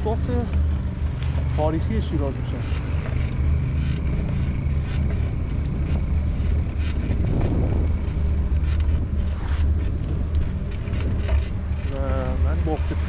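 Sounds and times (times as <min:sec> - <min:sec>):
bicycle tyre road noise: 0:00.0 - 0:13.0
wind buffeting microphone: 0:03.4 - 0:13.0.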